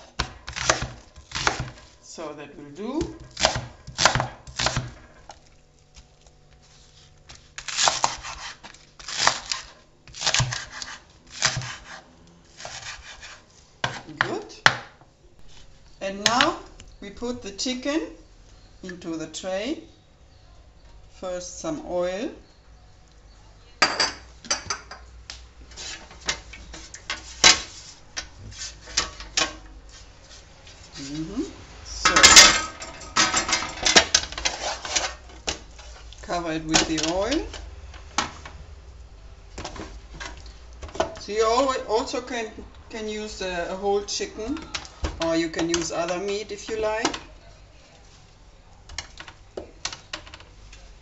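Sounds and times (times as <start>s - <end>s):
knife cutting onto wooden board: 7.6s - 12.0s, 12.6s - 14.1s
hand scraping roasting tray: 25.7s - 37.6s.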